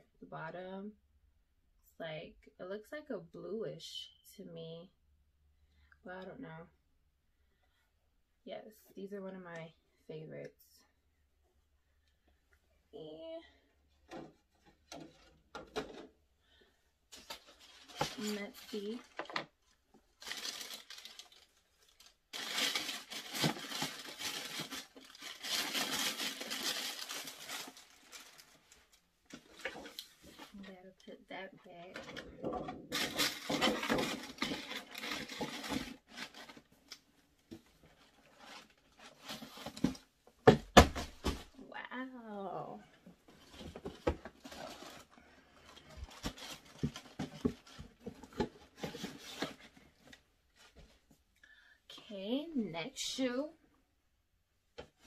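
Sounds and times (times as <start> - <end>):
cardboard rustling: 17.1 - 19.4, 20.0 - 30.6, 31.9 - 41.6, 43.3 - 51.0
plastic bag crinkling: 17.2 - 30.6, 31.9 - 37.0, 43.5 - 49.7
cardboard boxes knocking and thumping: 39.6 - 41.5.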